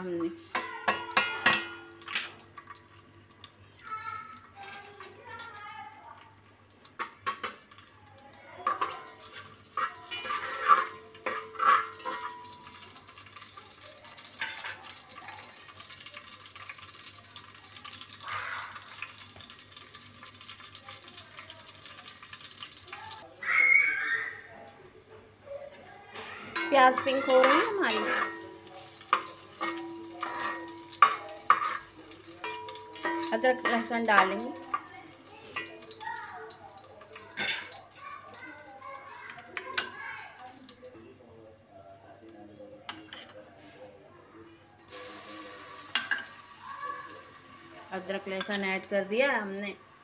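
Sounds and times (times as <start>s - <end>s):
onions sizzling in hot oil: 0.0s - 24.1s, 24.9s - 41.0s, 44.9s - 50.0s.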